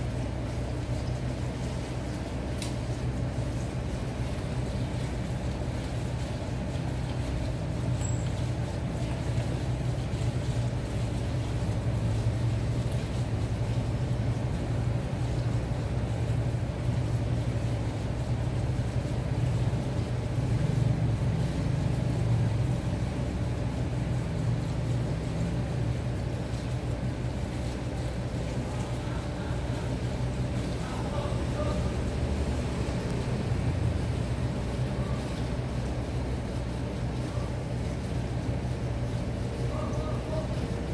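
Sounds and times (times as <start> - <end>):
low electric motor hum: 0.0 - 40.9.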